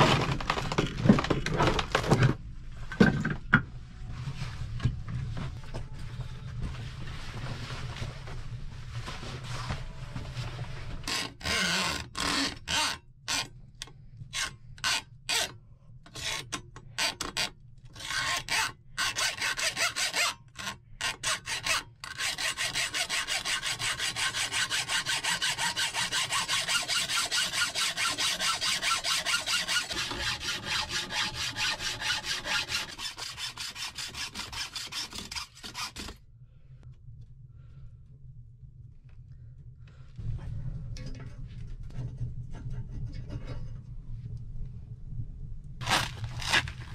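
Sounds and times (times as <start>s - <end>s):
rasping hand tool strokes: 18.0s - 36.2s.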